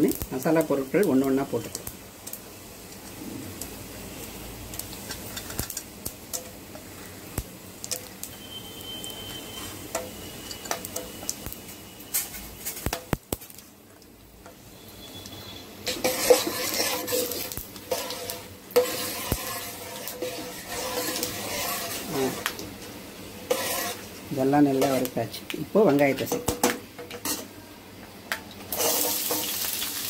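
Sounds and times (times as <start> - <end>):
oil sizzling: 0.0 - 30.0
steel ladle scraping pan: 15.2 - 22.6, 23.4 - 24.1, 27.2 - 27.5, 28.7 - 29.6.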